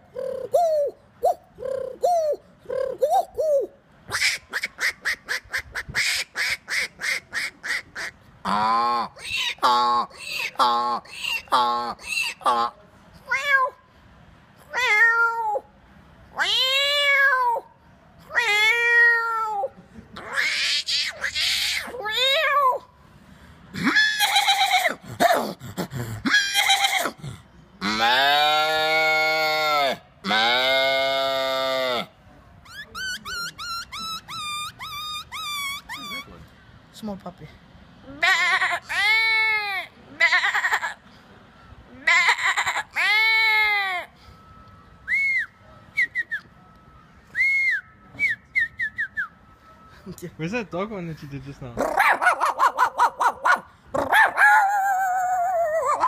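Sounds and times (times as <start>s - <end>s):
man imitating animal calls: 0.0s - 12.8s, 23.8s - 32.1s, 51.8s - 56.0s
man imitating dog yelps: 23.8s - 27.2s, 51.8s - 56.0s.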